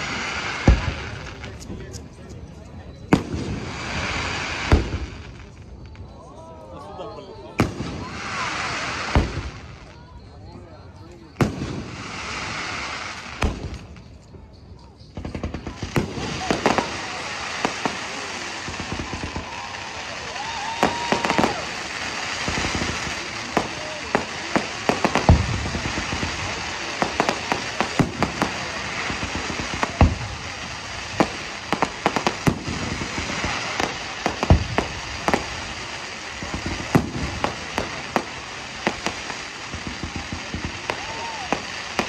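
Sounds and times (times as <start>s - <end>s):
heavy firework booms: 0.0s - 1.6s, 3.1s - 5.3s, 7.5s - 9.7s, 11.4s - 14.0s, 15.2s - 42.0s
fireworks bangs and crackling: 0.0s - 42.0s.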